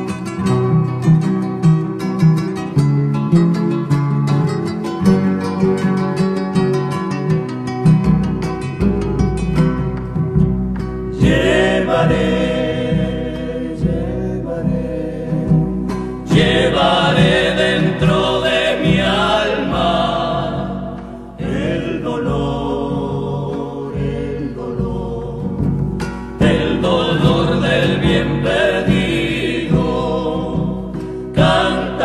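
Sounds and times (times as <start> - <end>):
strummed acoustic guitar: 0.0 - 32.0
male voices singing in harmony: 11.1 - 32.0.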